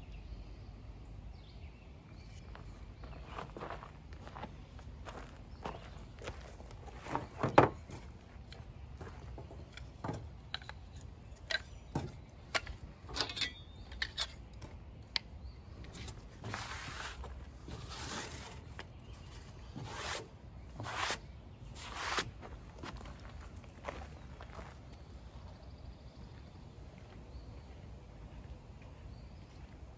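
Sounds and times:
wooden sticks clicking and knocking: 7.0 - 17.0
board scraping across table: 16.0 - 18.8, 19.7 - 21.2, 21.8 - 22.3.

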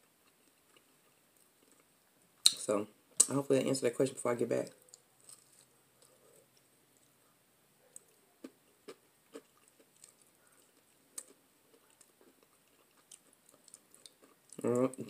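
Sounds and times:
chewing clicks and ticks: 7.9 - 15.0.

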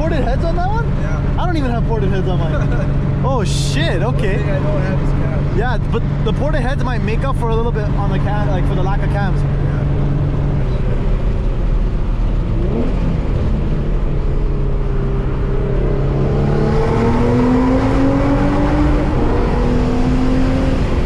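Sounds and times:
car engine from inside cabin: 0.0 - 21.0.

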